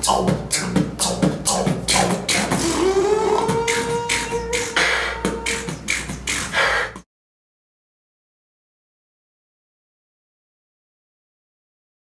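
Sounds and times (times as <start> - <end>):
person beatboxing: 0.0 - 7.1
hummed rising tone: 0.6 - 6.2.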